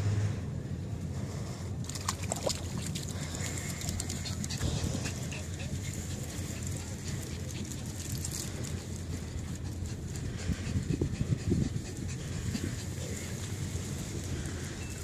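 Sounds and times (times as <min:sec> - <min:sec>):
steady low rumble: 0:00.0 - 0:15.0
small dog panting: 0:03.6 - 0:14.9.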